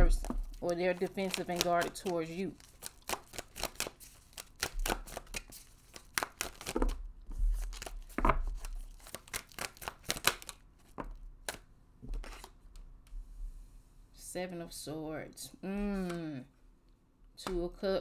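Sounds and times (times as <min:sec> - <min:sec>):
cards being shuffled: 0:00.0 - 0:12.8, 0:15.8 - 0:16.4.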